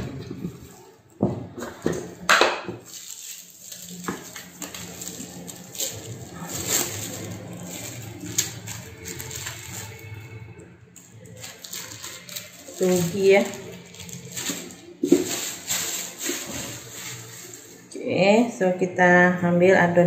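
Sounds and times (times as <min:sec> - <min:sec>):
plastic bag crinkling: 0:02.8 - 0:18.0.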